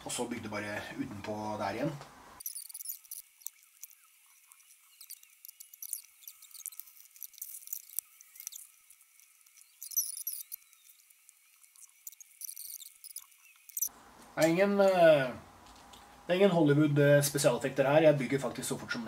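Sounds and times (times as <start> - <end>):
plastic bag crinkling: 2.4 - 13.9.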